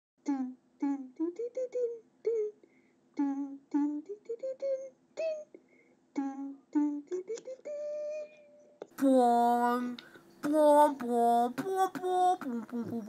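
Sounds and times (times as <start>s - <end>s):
person singing syllables: 0.2s - 13.0s.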